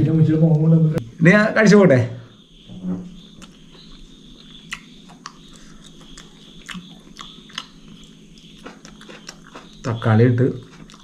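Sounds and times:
man chewing: 3.3s - 10.0s, 10.6s - 11.0s.

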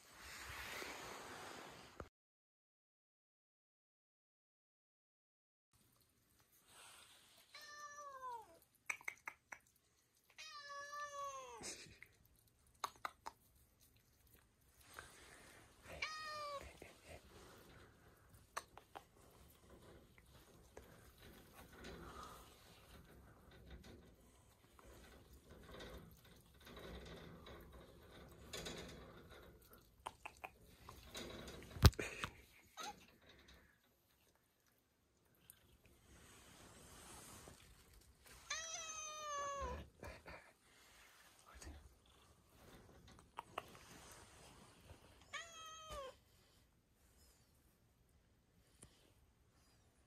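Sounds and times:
cat meowing: 15.9s - 16.6s, 38.5s - 39.9s, 45.2s - 46.2s.

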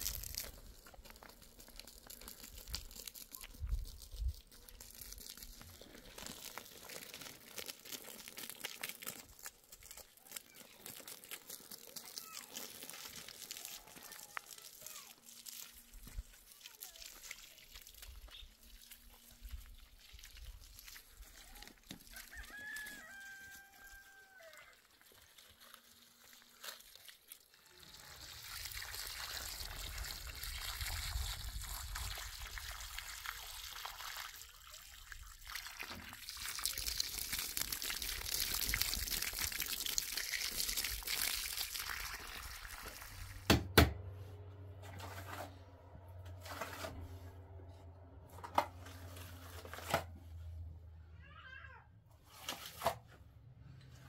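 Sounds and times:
garden hose water rushing: 0.0s - 43.8s, 44.8s - 47.1s
rooster crowing: 22.1s - 24.7s.

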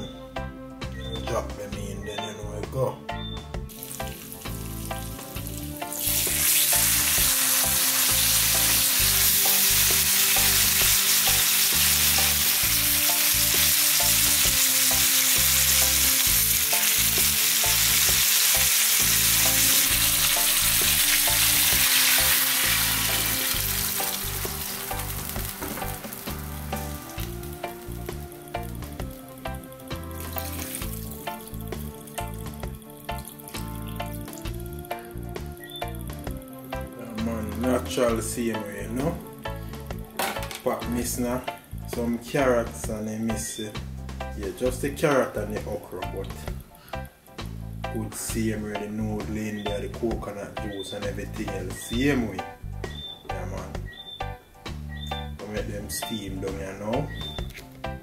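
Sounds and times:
butter sizzling in frying pan: 3.7s - 36.6s.

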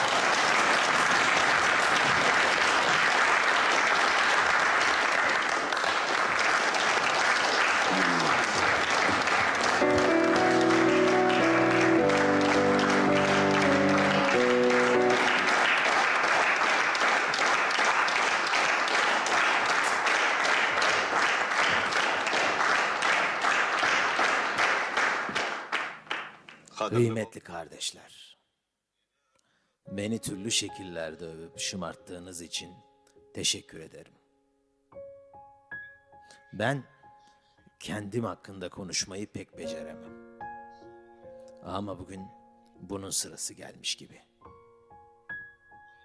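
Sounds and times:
audience applauding: 0.0s - 26.7s
upright piano chords: 8.0s - 17.5s.

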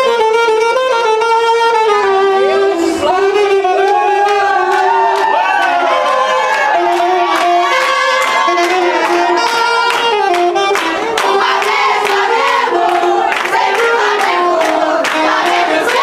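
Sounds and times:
backing music: 0.0s - 16.0s
saxophone melody: 0.0s - 16.0s
hand clapping on the beat: 3.8s - 16.0s.

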